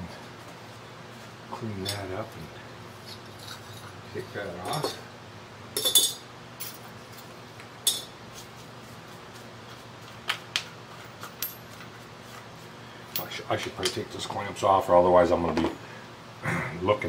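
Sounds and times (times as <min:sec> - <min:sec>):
faint steady hum: 0:00.0 - 0:17.0
metal tools clinking on metal plate: 0:05.8 - 0:06.8, 0:07.8 - 0:08.1.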